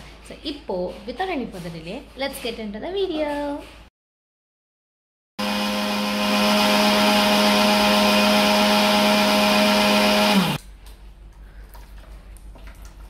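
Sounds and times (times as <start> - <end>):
mixer grinder motor whine: 5.4 - 10.6.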